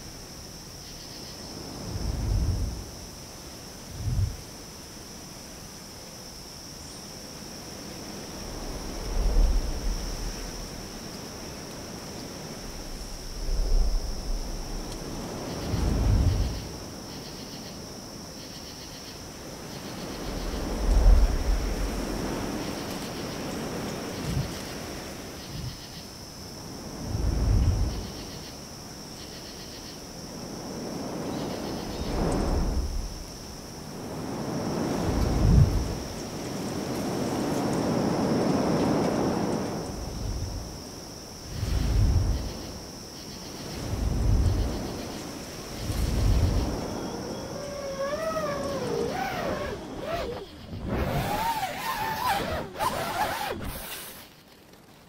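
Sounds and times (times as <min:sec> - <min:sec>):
crickets chirring: 0:00.0 - 0:55.0
rush of air: 0:01.6 - 0:03.1, 0:03.8 - 0:04.6, 0:12.5 - 0:16.8, 0:26.8 - 0:28.1, 0:30.3 - 0:43.0, 0:43.6 - 0:54.3.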